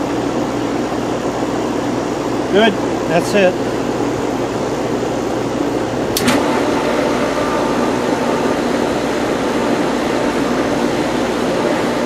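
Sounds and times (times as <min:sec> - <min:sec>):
pool pump motor humming: 0:00.0 - 0:12.0
sharp click: 0:06.1 - 0:06.4.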